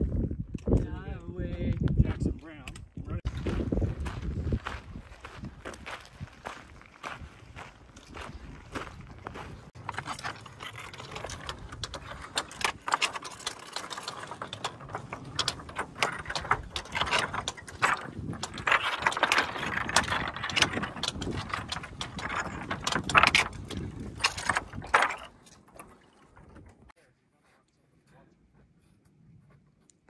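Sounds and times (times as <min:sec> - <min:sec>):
footsteps crunching over loose rock: 0:03.2 - 0:25.4
stones clinking: 0:09.8 - 0:25.8
trekking poles striking stone: 0:09.8 - 0:26.0.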